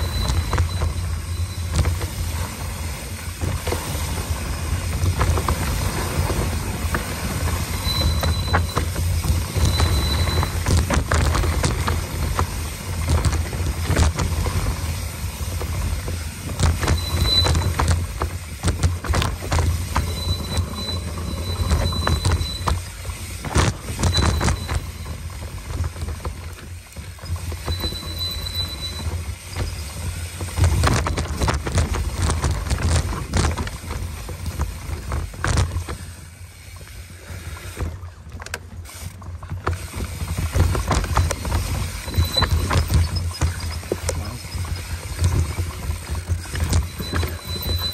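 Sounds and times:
high-pitched squeals: 0:00.0 - 0:02.6, 0:07.3 - 0:12.0, 0:16.7 - 0:18.0, 0:19.9 - 0:23.1, 0:27.2 - 0:30.0, 0:41.0 - 0:44.9, 0:46.6 - 0:47.9
wind rumble on microphone: 0:00.0 - 0:36.3, 0:39.5 - 0:47.9
bike rattling and knocking: 0:00.0 - 0:47.9
bike tyres rolling over dirt: 0:00.0 - 0:47.9.

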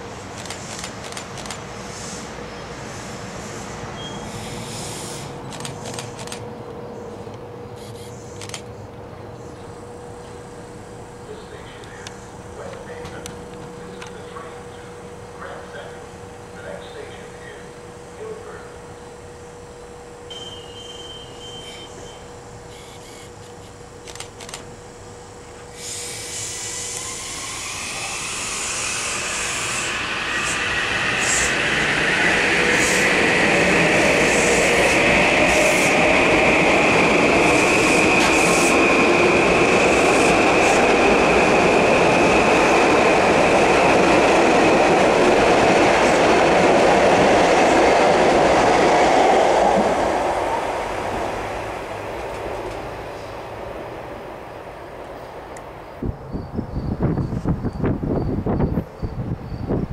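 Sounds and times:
steady high whine: 0:00.0 - 0:58.8
train wheel and rail noise: 0:00.0 - 0:59.9
sharp clicks of train: 0:00.2 - 0:02.3, 0:03.4 - 0:06.6, 0:07.3 - 0:09.5, 0:11.4 - 0:16.0, 0:20.3 - 0:24.8, 0:25.4 - 0:31.6, 0:37.3 - 0:41.3, 0:52.0 - 0:53.5, 0:55.0 - 0:56.1.

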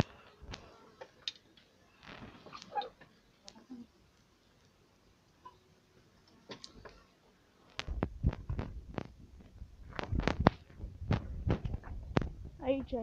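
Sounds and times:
footsteps: 0:07.8 - 0:13.0.

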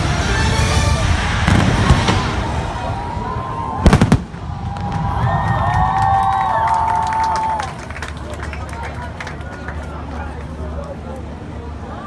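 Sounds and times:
loud bangs: 0:00.8 - 0:05.9
firework launches rumbling: 0:00.9 - 0:06.2
firework shells bursting: 0:01.4 - 0:02.8, 0:03.8 - 0:05.0.

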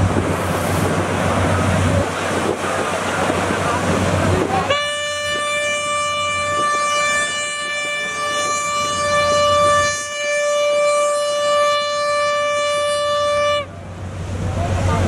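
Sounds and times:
boat horn blast: 0:04.5 - 0:13.8.

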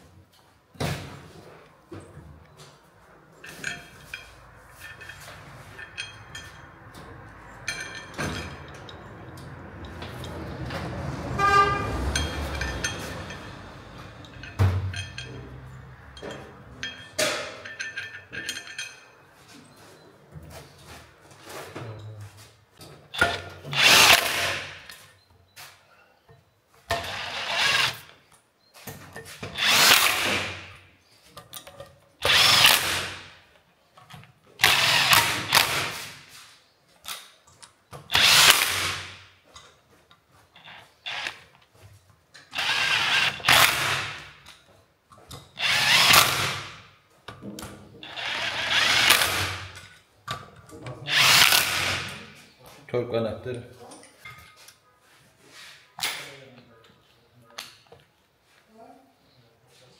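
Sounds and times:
power tool bursts: 0:23.7 - 0:24.9, 0:26.9 - 0:28.1, 0:29.5 - 0:30.8, 0:32.2 - 0:33.3, 0:34.6 - 0:36.2, 0:38.1 - 0:39.2, 0:42.5 - 0:44.4, 0:45.6 - 0:46.8, 0:48.1 - 0:49.8, 0:51.1 - 0:52.2.

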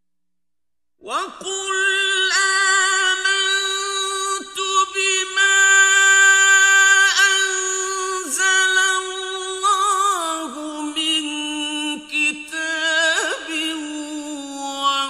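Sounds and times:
man chanting melodically: 0:01.0 - 0:15.0.

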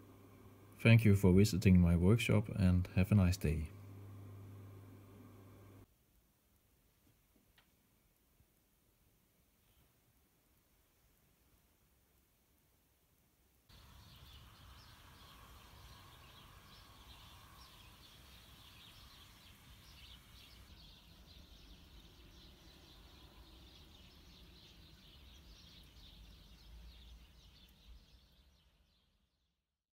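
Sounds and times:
small birds chirping: 0:13.7 - 0:29.6.

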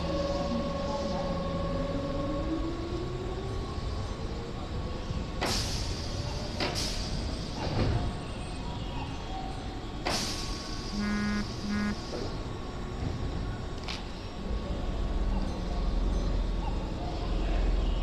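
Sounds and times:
train humming: 0:10.7 - 0:12.5.

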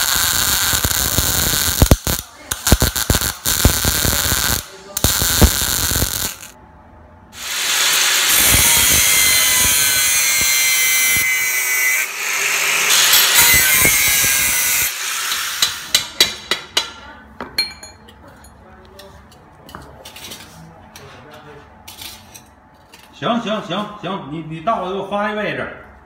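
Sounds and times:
arc welder crackling and popping: 0:00.0 - 0:06.6, 0:07.4 - 0:11.4, 0:12.0 - 0:16.2
angle grinder cutting steel: 0:02.6 - 0:06.5, 0:07.4 - 0:16.0.

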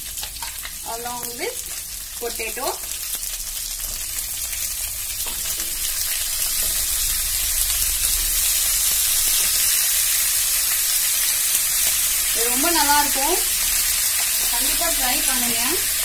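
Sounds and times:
oil sizzling in a pan: 0:00.0 - 0:16.0.

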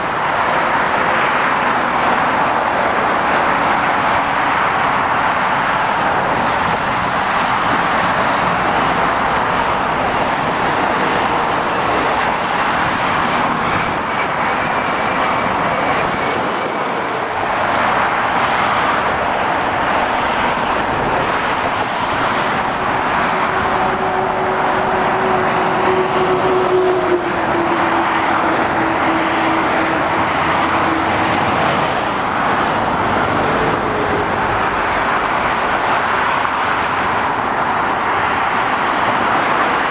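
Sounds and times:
traffic roar: 0:00.0 - 0:39.9.

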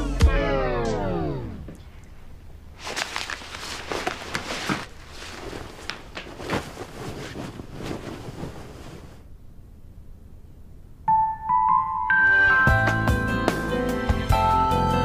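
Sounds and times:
rustling of clothing and bedding: 0:02.7 - 0:09.3
footsteps: 0:02.8 - 0:09.2.

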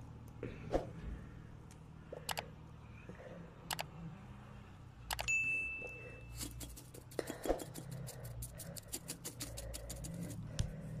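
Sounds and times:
low steady hum: 0:00.0 - 0:11.0
short bell ding: 0:05.3 - 0:06.0.

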